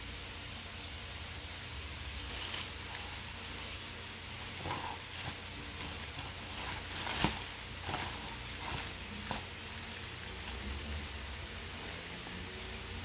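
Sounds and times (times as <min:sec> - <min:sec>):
steady hiss: 0:00.0 - 0:13.0
plastic wrapping crinkling: 0:02.1 - 0:10.7.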